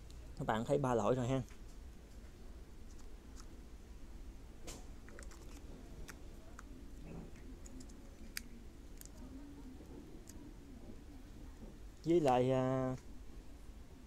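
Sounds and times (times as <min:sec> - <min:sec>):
plastic camera handling clicks: 0:04.7 - 0:06.2.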